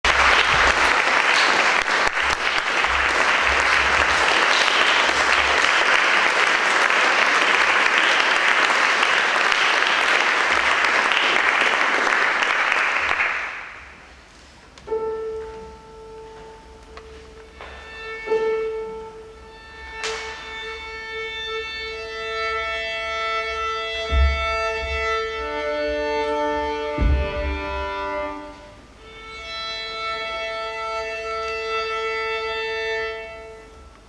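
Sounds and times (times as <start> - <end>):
audience applauding: 0.0 - 14.1
sustained piano note: 14.9 - 29.0.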